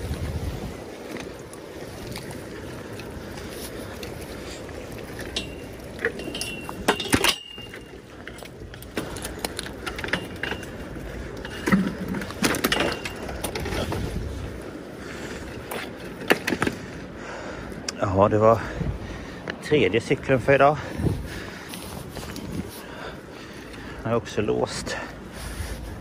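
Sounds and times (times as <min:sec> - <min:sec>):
metal bicycle clanking and rattling: 0:04.4 - 0:14.4.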